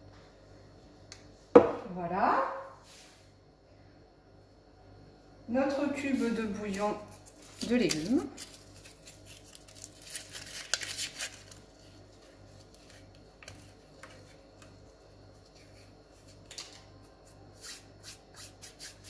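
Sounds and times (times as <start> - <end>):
faint low hum: 0.0 - 19.0
foil wrapper crinkling: 6.7 - 16.9.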